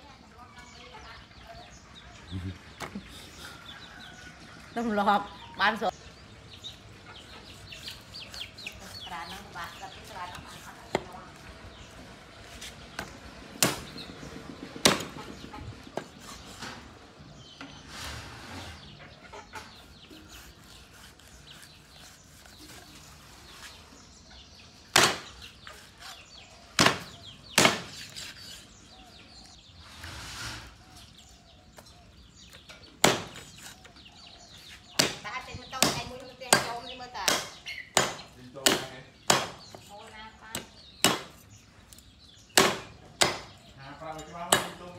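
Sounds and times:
handling and cutting sounds: 6.8 - 13.9, 19.6 - 24.1, 25.1 - 30.1
cleaver chopping meat and bone: 7.4 - 11.8, 12.5 - 16.8, 19.7 - 23.0, 24.8 - 28.8, 32.5 - 33.8, 34.4 - 39.9, 40.5 - 44.9.

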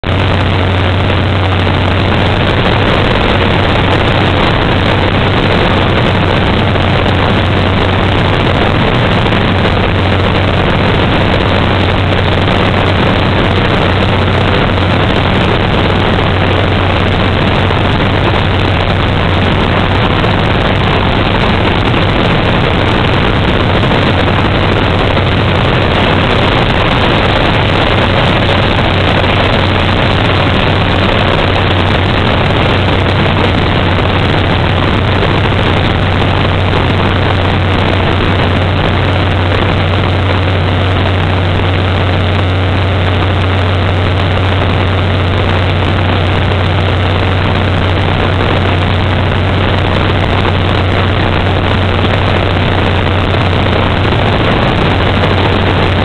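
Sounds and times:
propeller engine humming: 0.0 - 56.0
rushing cabin noise: 0.0 - 56.0.

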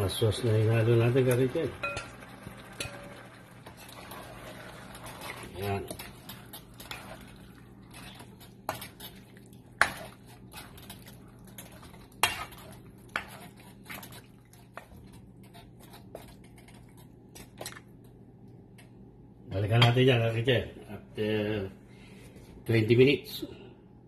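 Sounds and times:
spatula scraping and knocking wok: 9.8 - 14.2.

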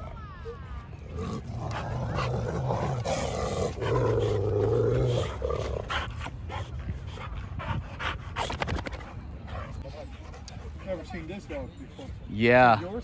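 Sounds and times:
dogs growling: 1.0 - 9.9.

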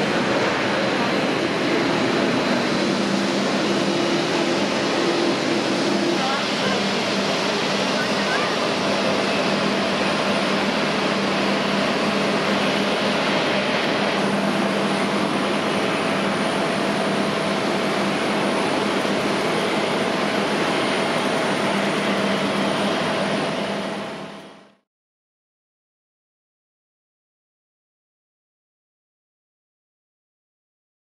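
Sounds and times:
jet engines whining: 0.0 - 24.8.

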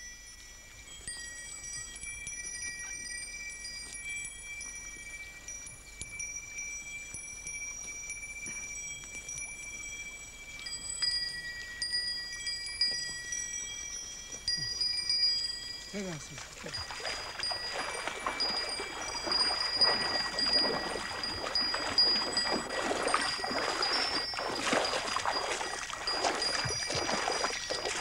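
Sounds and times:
small bells ringing: 0.0 - 28.0.

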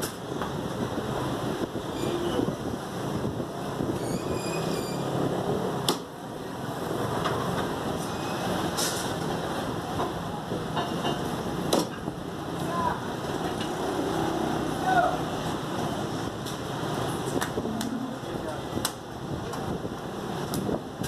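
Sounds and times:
background din: 17.5 - 18.8.

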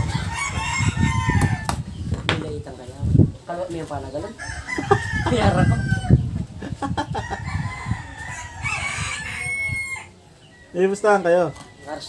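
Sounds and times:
rooster crowing: 0.0 - 1.7, 4.4 - 6.3, 7.1 - 10.2
chickens clucking: 0.0 - 12.0.

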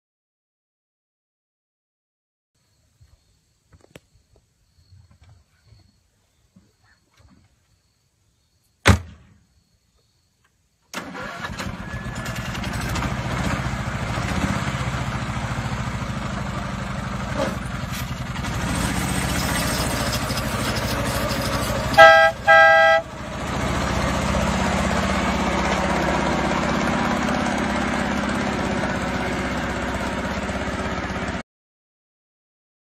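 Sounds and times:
sharp knock: 8.9 - 9.3
small truck engine running: 11.0 - 31.4
truck horn blasts: 20.9 - 23.4.

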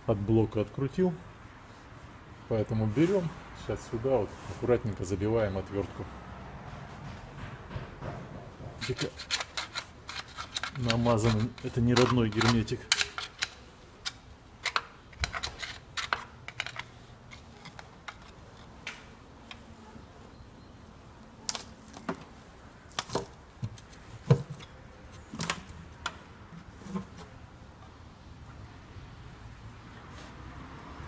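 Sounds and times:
screwdriver clicking on metal: 8.8 - 16.9.

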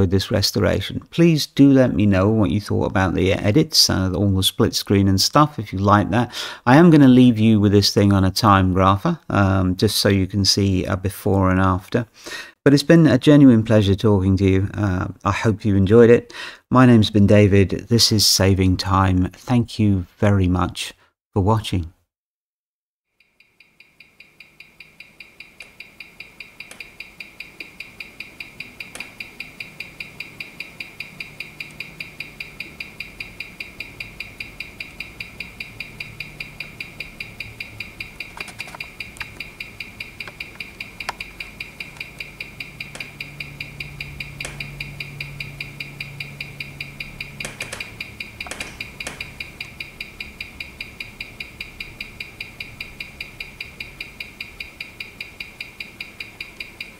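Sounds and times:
watch ticking: 23.2 - 56.9
louder clicks: 36.6 - 51.6.

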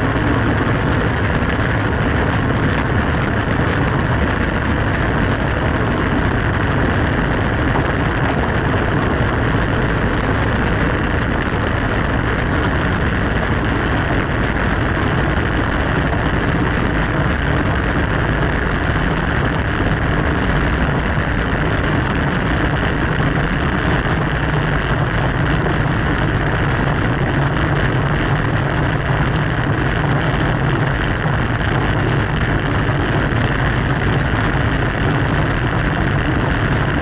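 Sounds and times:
bicycle road noise: 0.0 - 37.0
wind rushing on microphone: 0.0 - 37.0.

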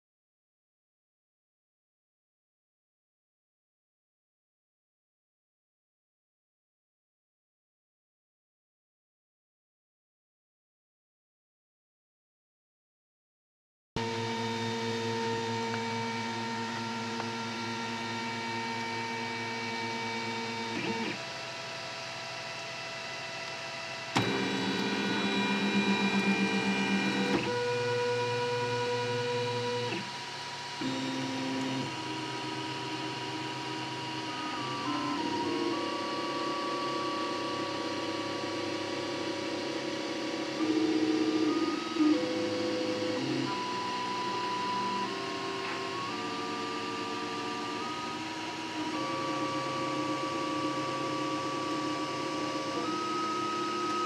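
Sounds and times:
cooling fans whirring: 14.0 - 43.6
printer click: 24.2 - 27.5.

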